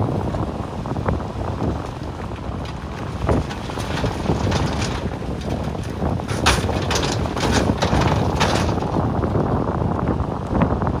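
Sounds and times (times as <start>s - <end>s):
bulldozer diesel engine running: 0.0s - 10.9s
wind buffeting microphone: 0.0s - 11.0s
metal clanks and clatter: 2.6s - 9.3s.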